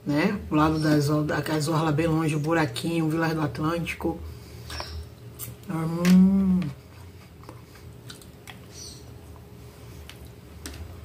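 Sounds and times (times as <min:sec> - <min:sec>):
woman humming hmm: 0:05.7 - 0:06.8.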